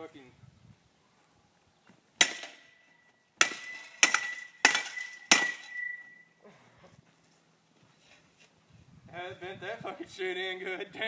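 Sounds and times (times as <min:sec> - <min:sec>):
bat clanging on metal: 0:02.2 - 0:02.8, 0:03.4 - 0:06.2.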